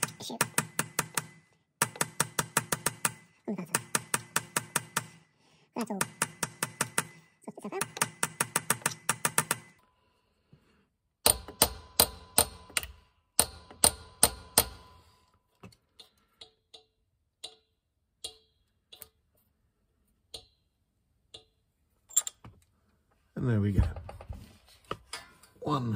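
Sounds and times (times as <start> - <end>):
hammer tapping metal drift: 11.2 - 15.1, 16.0 - 19.1.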